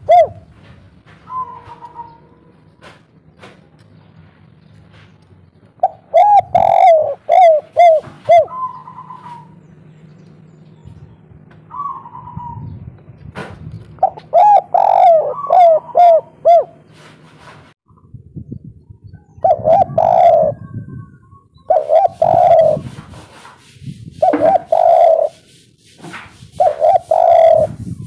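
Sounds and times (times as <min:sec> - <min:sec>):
dove cooing: 0:00.0 - 0:00.6, 0:01.2 - 0:02.8, 0:05.8 - 0:09.6, 0:11.6 - 0:12.8, 0:14.0 - 0:17.1, 0:19.4 - 0:23.4, 0:24.2 - 0:25.5, 0:26.6 - 0:27.8.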